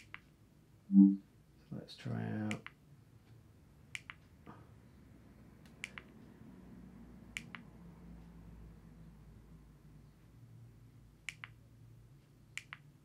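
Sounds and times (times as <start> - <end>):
remote buttons clicking: 4.0 - 4.3, 5.7 - 6.1, 11.2 - 11.6, 12.6 - 12.9.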